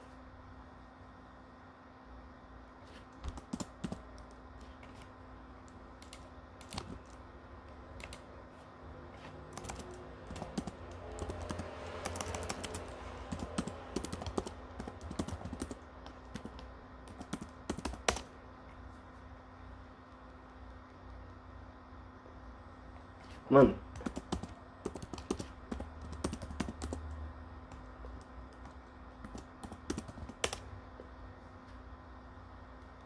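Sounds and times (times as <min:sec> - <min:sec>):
faint steady hum: 0:00.0 - 0:33.0
keyboard keys clicking: 0:06.0 - 0:07.2, 0:09.5 - 0:18.3, 0:27.7 - 0:30.6.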